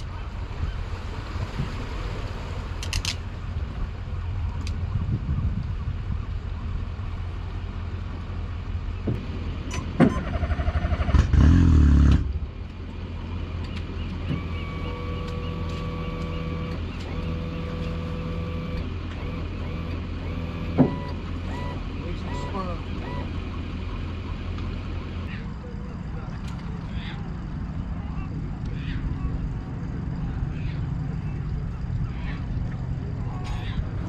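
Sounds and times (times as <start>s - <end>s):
water noise: 0.0s - 15.7s, 16.6s - 34.0s
boat engine humming: 0.0s - 34.0s
wind: 0.0s - 34.0s.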